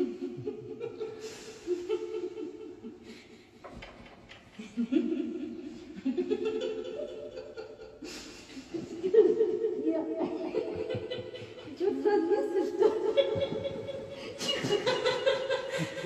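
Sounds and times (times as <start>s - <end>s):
person laughing: 6.2s - 16.0s.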